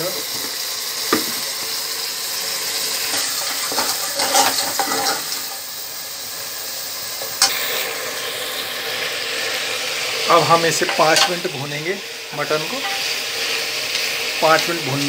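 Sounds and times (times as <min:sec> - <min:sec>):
meat sizzling in a pot: 0:00.0 - 0:15.0
ladle scraping against pot: 0:03.1 - 0:05.4.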